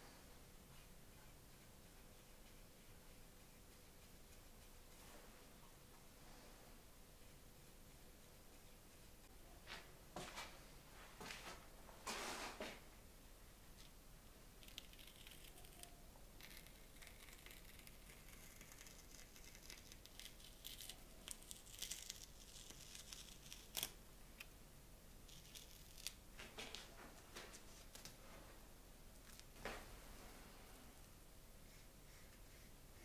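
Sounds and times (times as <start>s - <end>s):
tape peeling off paper: 14.6s - 24.5s, 25.3s - 26.9s.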